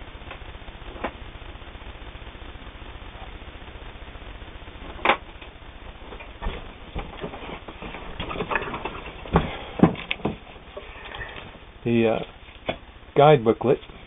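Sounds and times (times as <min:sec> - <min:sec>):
knocks and rustles: 0:04.9 - 0:11.6.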